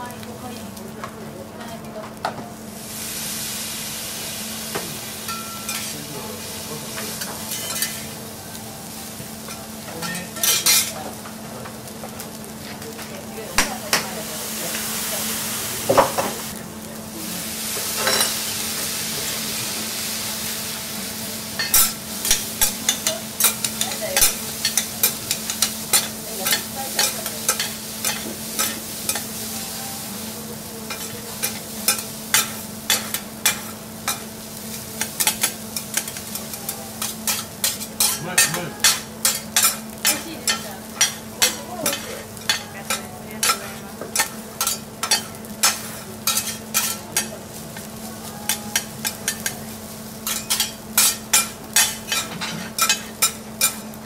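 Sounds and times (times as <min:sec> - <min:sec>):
rice sizzling on griddle: 0:00.0 - 0:54.0
metal spatulas scraping griddle: 0:44.2 - 0:47.9.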